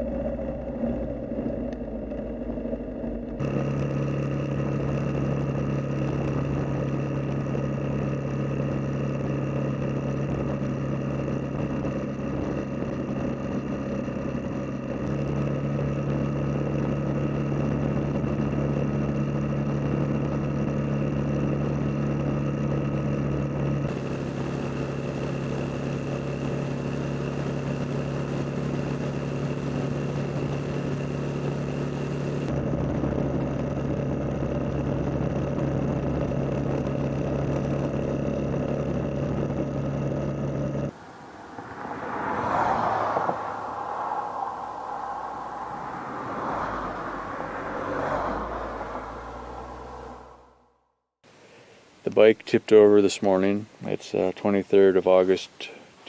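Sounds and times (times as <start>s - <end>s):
motorcycle engine running: 0.0s - 42.4s
wind and road noise: 0.0s - 52.2s.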